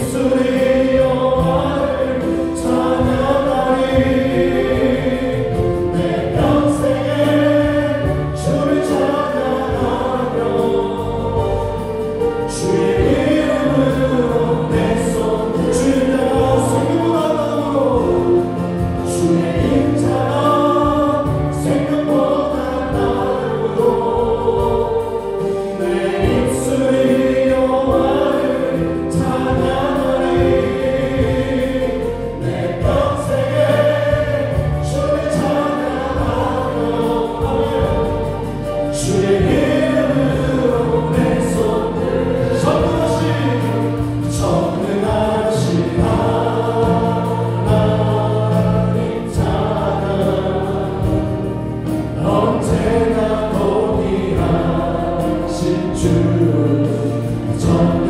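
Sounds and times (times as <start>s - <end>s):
bass guitar: 0.0s - 58.0s
drums: 0.0s - 58.0s
group singing worship song: 0.0s - 58.0s
keyboard: 0.0s - 58.0s.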